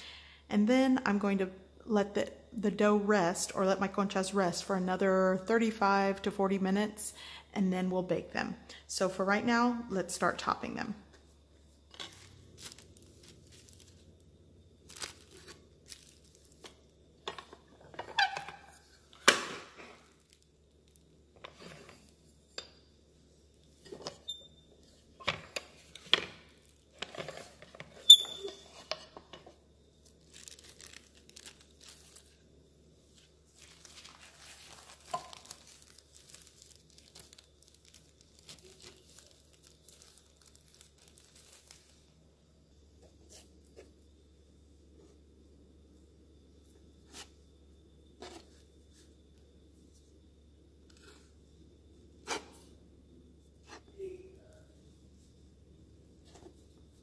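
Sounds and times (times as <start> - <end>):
plastic sheeting crinkling: 11.9 - 14.2, 14.8 - 16.9, 30.0 - 32.4, 33.0 - 42.2.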